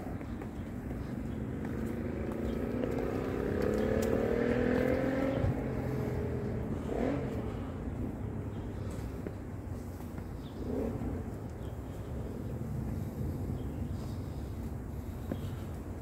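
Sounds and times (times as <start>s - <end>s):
vehicle accelerating past: 1.5s - 7.8s.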